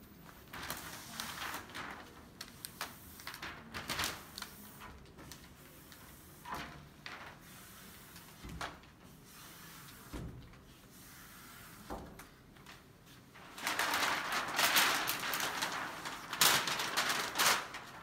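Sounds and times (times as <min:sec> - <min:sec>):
plastic film rustling: 0:00.0 - 0:18.0.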